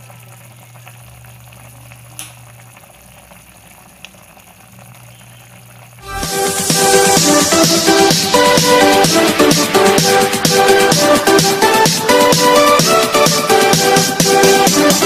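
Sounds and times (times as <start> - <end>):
pot bubbling: 0.0 - 14.2
low hum: 6.0 - 8.8
electronic dance music: 6.0 - 15.0.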